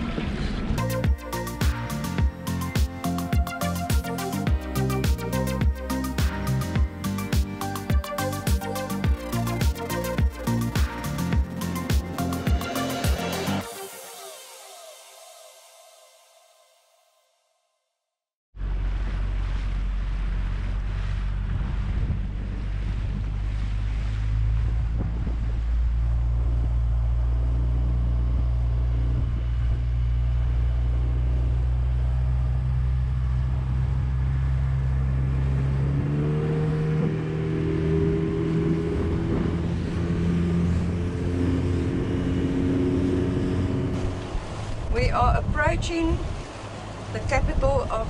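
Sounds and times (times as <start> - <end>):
small outboard motor: 18.6 - 45.0.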